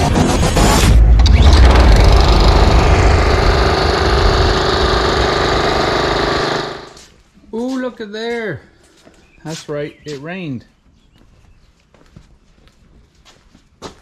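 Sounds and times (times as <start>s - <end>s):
lawn mower engine running: 1.2s - 7.0s.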